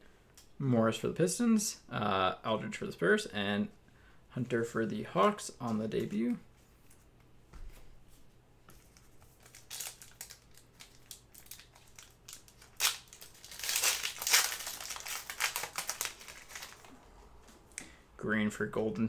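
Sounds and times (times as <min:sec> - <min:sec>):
card packs crinkling: 0:08.8 - 0:17.3.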